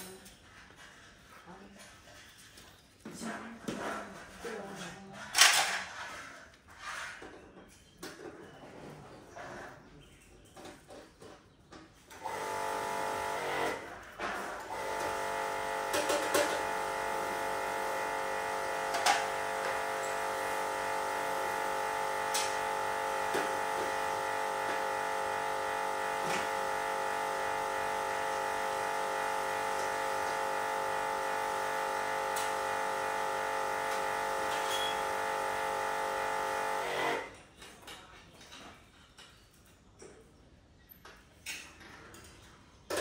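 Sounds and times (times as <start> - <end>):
induction cooker buzzing: 14.7 - 37.3.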